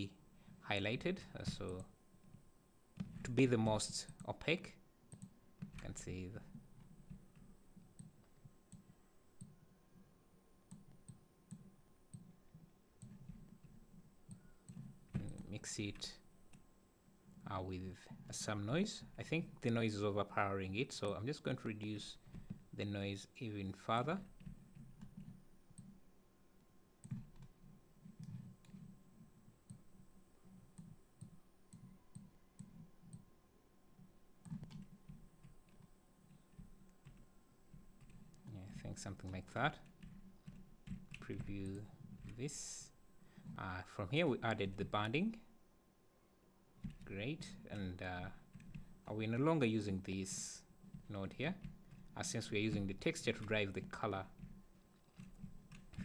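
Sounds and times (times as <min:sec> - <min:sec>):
low room hiss: 0:00.0 - 0:56.0
computer mouse clicks: 0:05.1 - 0:05.9, 0:10.7 - 0:15.6, 0:27.0 - 0:28.9, 0:30.7 - 0:33.3, 0:34.4 - 0:38.5.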